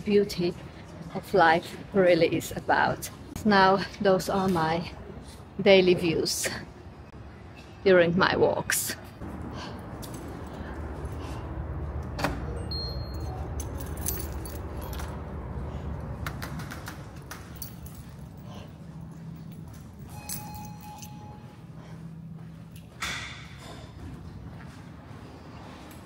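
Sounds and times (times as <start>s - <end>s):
metallic jingling while walking: 12.7s - 15.2s, 17.4s - 21.6s.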